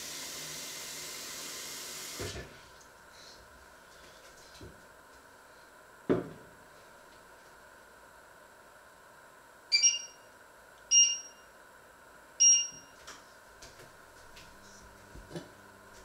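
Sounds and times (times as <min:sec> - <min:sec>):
short electronic beeps: 0:09.7 - 0:10.3, 0:10.9 - 0:11.5, 0:12.4 - 0:13.0.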